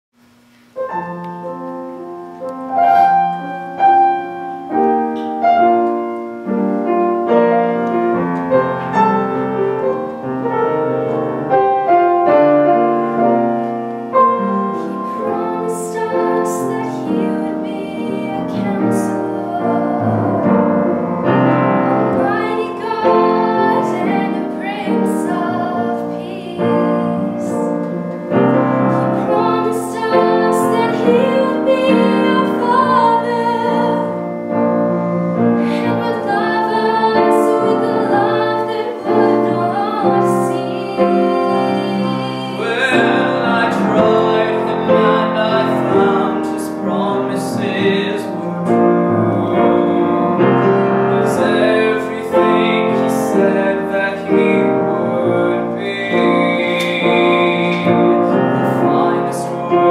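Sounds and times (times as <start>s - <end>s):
upright piano ballad: 0.5s - 59.9s
woman singing with vibrato: 14.8s - 20.7s, 21.9s - 27.8s, 28.9s - 34.3s, 35.6s - 48.5s.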